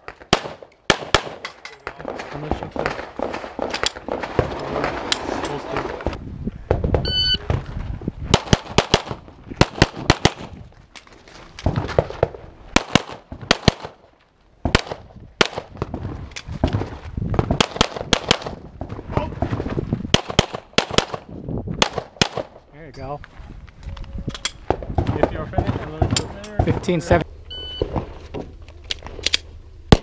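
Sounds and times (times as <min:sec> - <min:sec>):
pistol shots: 0:00.3 - 0:01.5, 0:08.3 - 0:10.5, 0:12.7 - 0:14.0, 0:20.1 - 0:22.6
shot timer beep: 0:07.1 - 0:07.4.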